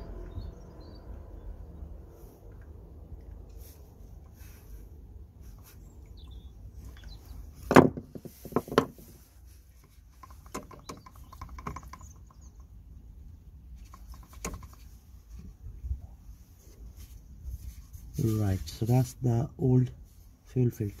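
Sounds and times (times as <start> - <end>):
knocks of tools being handled: 7.7 - 9.1.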